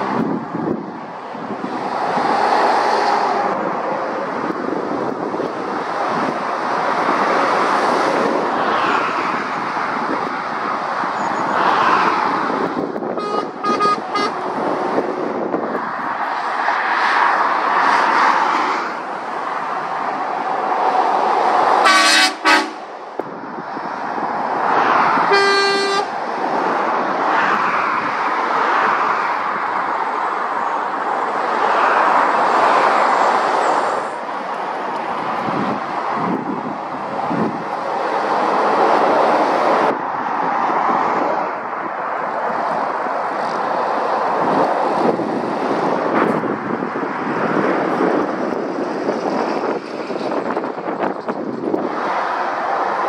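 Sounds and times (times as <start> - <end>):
vehicles passing at speed: 0.0 - 53.0
vehicle horn toots: 13.2 - 14.4, 21.8 - 22.8, 25.3 - 26.1.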